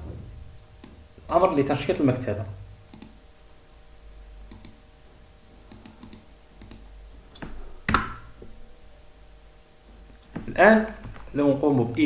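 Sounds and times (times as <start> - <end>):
computer keyboard keys clicking: 4.5 - 4.8, 5.7 - 6.9.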